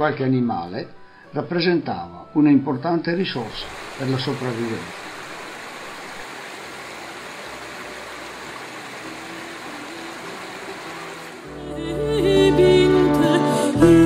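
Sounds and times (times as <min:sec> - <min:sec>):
water rushing over rocks: 0:03.3 - 0:11.6.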